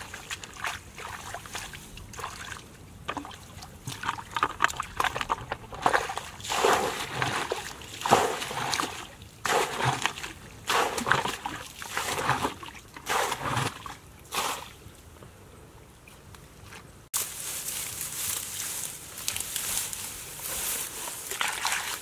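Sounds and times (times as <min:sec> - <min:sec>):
water splashing from bucket: 0:00.0 - 0:14.8, 0:21.2 - 0:22.0.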